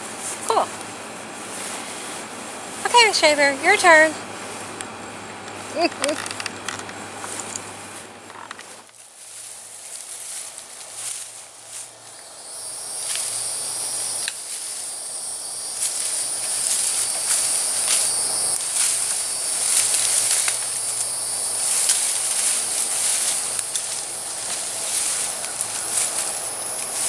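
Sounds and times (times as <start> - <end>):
insects chorus: 0.0 - 27.0
rustling undergrowth: 0.0 - 27.0
twigs snapping: 15.8 - 27.0.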